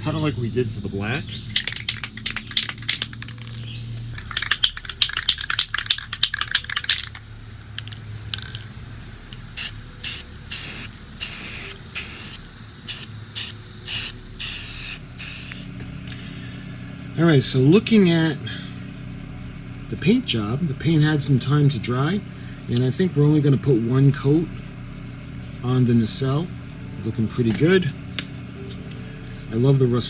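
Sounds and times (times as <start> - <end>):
spray paint hissing: 0.0 - 7.2, 7.8 - 8.6, 9.5 - 15.8
spray can rattling: 1.5 - 8.7, 9.6 - 15.7.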